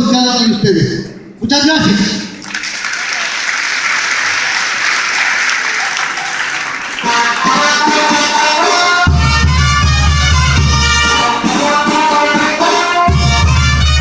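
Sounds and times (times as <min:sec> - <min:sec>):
crowd applauding: 0:02.4 - 0:14.0
music with held notes: 0:06.9 - 0:14.0.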